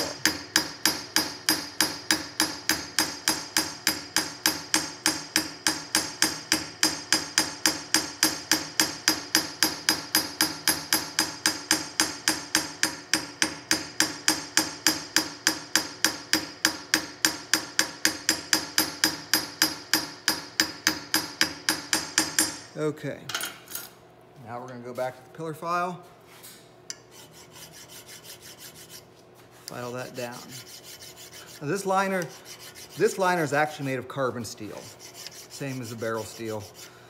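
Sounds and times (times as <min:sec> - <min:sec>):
hammer tapping on steel: 0:00.0 - 0:22.6.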